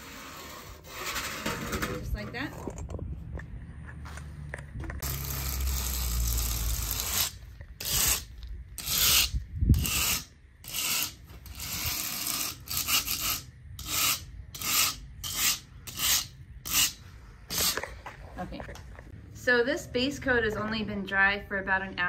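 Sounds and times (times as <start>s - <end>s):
long floor scraper scrape: 0.0s - 2.0s, 5.0s - 17.9s.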